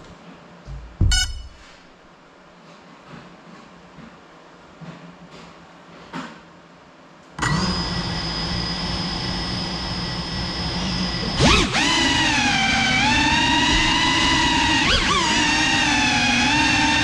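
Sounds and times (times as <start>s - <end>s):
drone motors whining: 7.4s - 17.0s.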